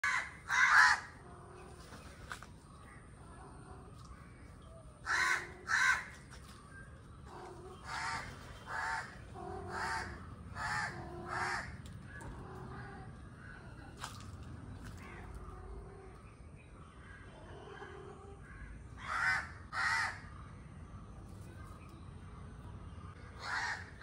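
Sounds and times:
crow cawing: 0.0 - 1.1, 5.0 - 6.1, 7.8 - 9.1, 9.7 - 11.7, 18.5 - 20.2, 23.4 - 24.0.

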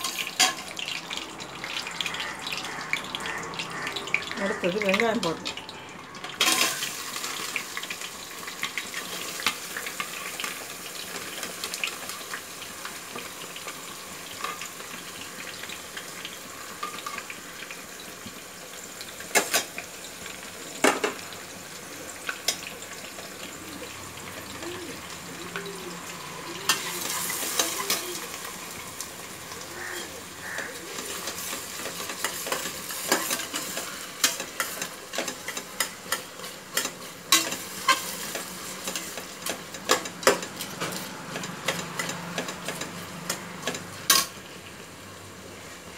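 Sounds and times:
onions sizzling in hot oil: 0.0 - 45.9
metal spatula scraping pan: 26.6 - 28.3, 29.9 - 44.3.

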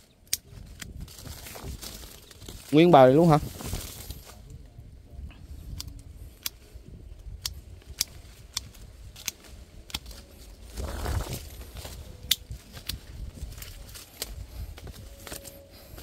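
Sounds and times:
leaves and twigs rustling: 0.0 - 16.0
pruning shears snipping: 5.7 - 16.0.

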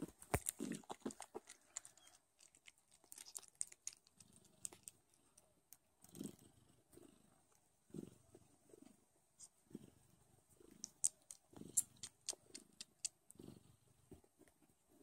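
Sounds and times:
kitten purring: 0.0 - 15.0
kittens wet sucking: 0.3 - 5.0, 10.8 - 13.2.

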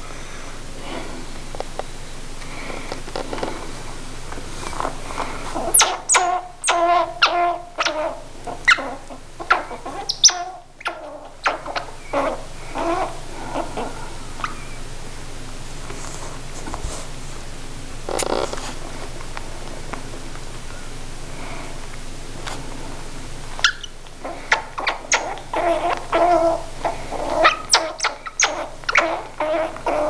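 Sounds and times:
baby squirrel squeaky chirps: 5.6 - 13.6, 23.6 - 30.0.

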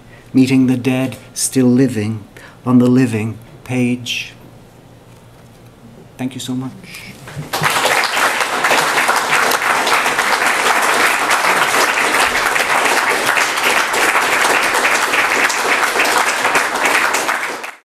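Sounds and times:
audience applauding: 7.2 - 17.8.

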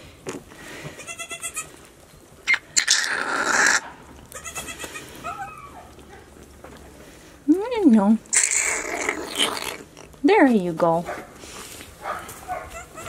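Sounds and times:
goat kid bleating weakly: 1.0 - 1.7, 4.3 - 6.0, 12.7 - 13.0
rustling: 3.9 - 13.0.

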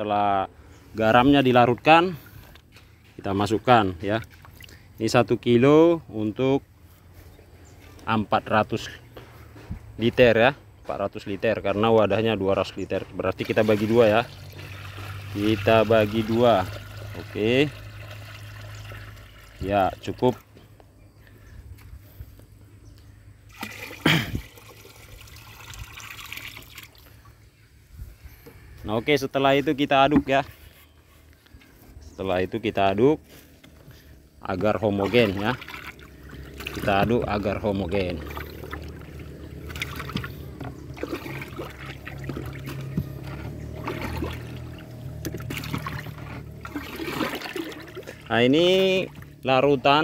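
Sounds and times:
liquid pouring into plastic drum: 13.3 - 20.4, 23.5 - 27.2, 34.5 - 48.3.

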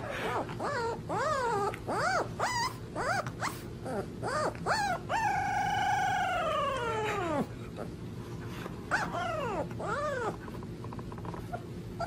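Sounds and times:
puppy yowling: 0.0 - 7.5, 8.9 - 10.5.

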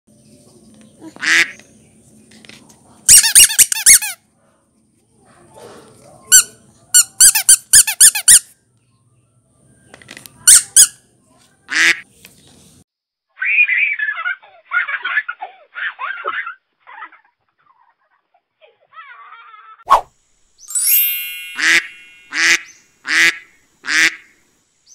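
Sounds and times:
rubber duck toys squeaking: 3.1 - 4.2, 6.3 - 8.6, 10.3 - 11.0.

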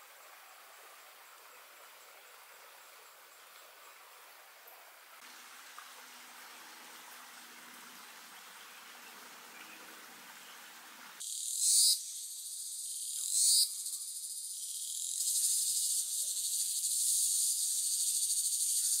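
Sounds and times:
faint running stream: 0.0 - 19.0
insect chorus chirring: 11.2 - 19.0.

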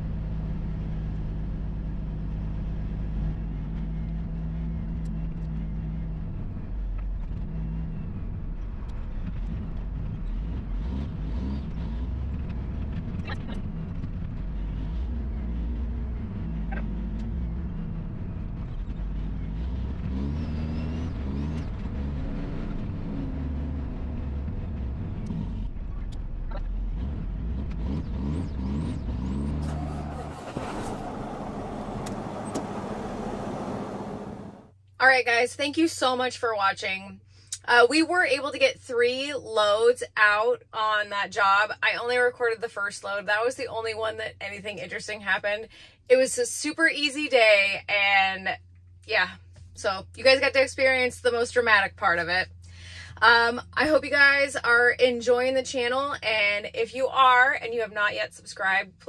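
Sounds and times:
diesel truck engine running: 28.0 - 34.7.

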